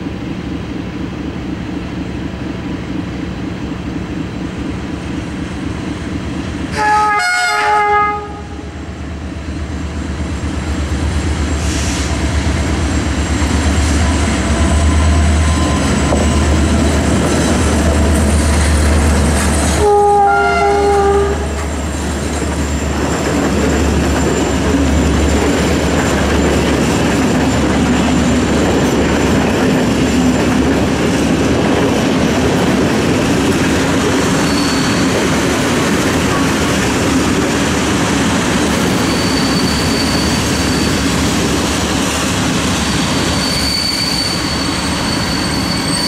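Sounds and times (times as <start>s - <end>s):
locomotive rumble: 0.0s - 46.0s
train horn blast: 6.7s - 8.8s, 19.7s - 21.6s.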